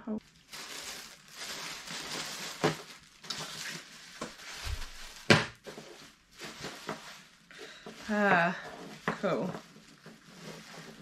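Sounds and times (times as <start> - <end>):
plastic packaging rustling: 0.2 - 11.0.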